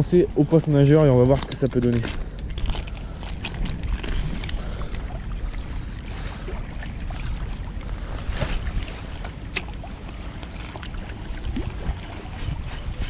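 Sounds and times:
wind buffeting microphone: 0.0s - 13.0s
fishing reel bail click: 10.4s - 10.9s.

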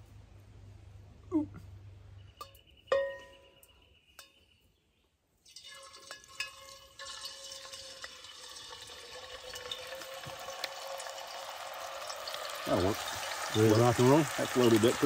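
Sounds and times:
fat sizzling in a pot: 5.4s - 15.0s.

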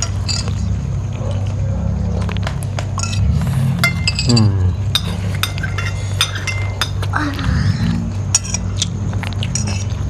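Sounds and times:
utensils clinking on glass bowls: 0.0s - 0.7s, 3.0s - 7.3s, 8.2s - 10.0s
steady low hum: 0.0s - 10.0s.

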